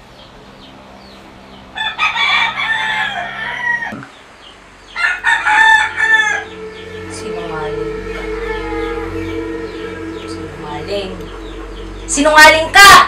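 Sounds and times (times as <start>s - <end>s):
rooster crowing: 1.7s - 4.1s, 4.9s - 13.0s.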